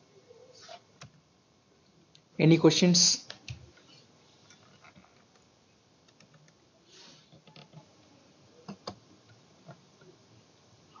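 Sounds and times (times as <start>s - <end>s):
low room hiss: 0.0s - 11.0s
computer mouse clicks: 6.1s - 6.6s.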